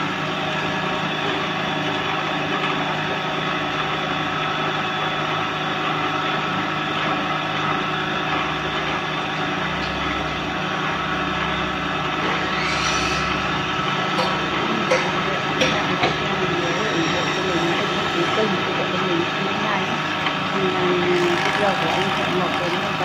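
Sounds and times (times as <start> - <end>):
electric wood planer running: 0.0 - 23.0
short rising whine: 7.9 - 15.3.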